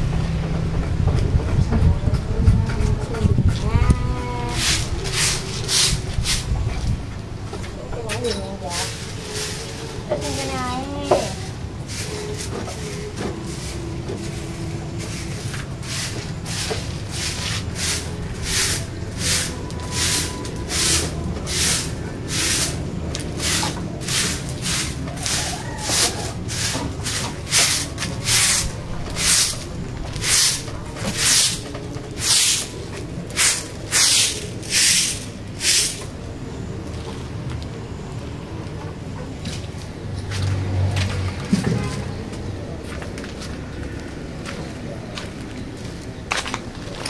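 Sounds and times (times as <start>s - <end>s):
broom sweeping concrete floor: 4.0s - 7.0s, 8.1s - 36.2s.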